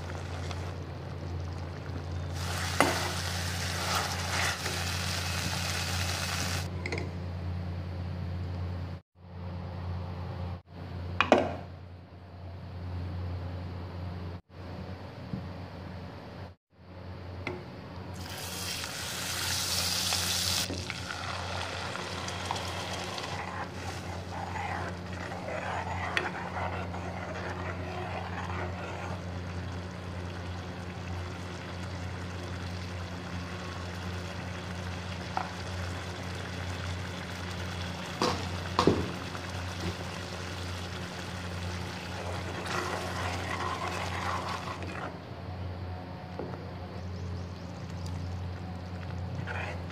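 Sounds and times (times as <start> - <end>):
butter sizzling in hot oil: 2.3 - 6.7, 18.2 - 44.7
steady low hum: 6.7 - 18.2, 21.0 - 49.9
ladle stirring in pan: 21.3 - 45.1.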